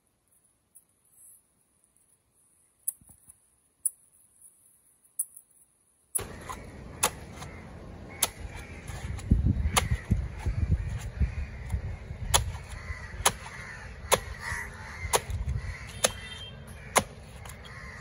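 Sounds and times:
cleaver chopping on wooden block: 0:12.2 - 0:16.3, 0:16.9 - 0:17.7.

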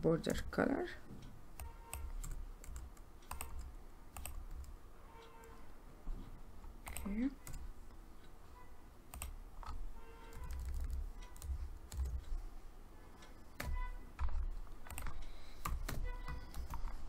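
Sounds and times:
keyboard keystrokes: 0:01.6 - 0:04.8, 0:06.8 - 0:07.6, 0:09.1 - 0:12.4, 0:13.5 - 0:17.0.

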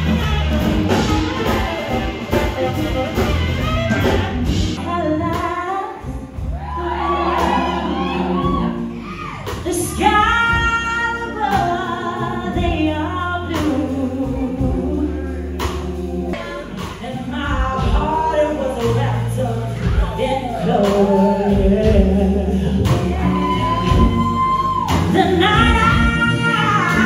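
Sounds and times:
live band music: 0:00.0 - 0:27.0
woman singing into a microphone: 0:04.8 - 0:08.9, 0:09.5 - 0:27.0.

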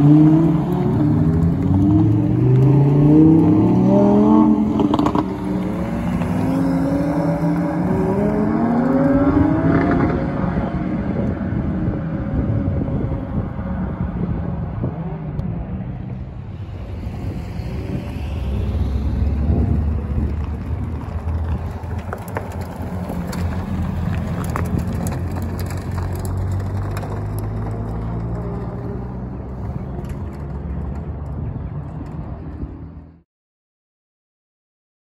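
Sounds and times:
car engines at low revs: 0:00.0 - 0:33.2
car passing close: 0:16.0 - 0:31.4.

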